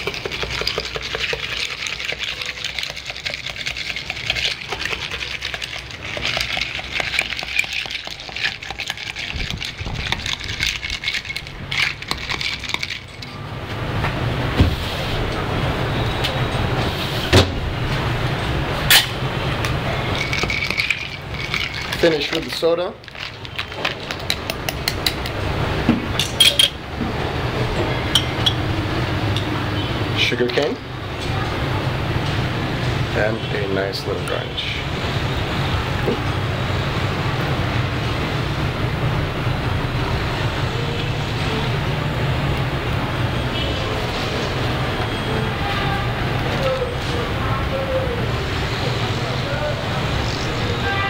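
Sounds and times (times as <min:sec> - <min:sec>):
ice clinking in glass: 0:00.0 - 0:13.4, 0:20.1 - 0:25.2.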